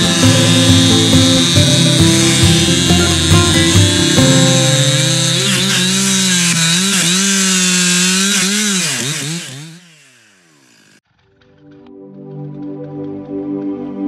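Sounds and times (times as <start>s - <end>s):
chainsaw cutting through log: 0.0s - 11.2s.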